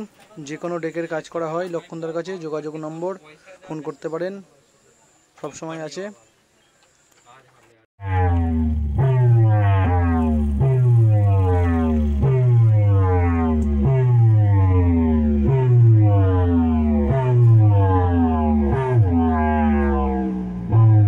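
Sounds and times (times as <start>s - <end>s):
buzzy tone sliding down in pitch: 8.0s - 21.0s.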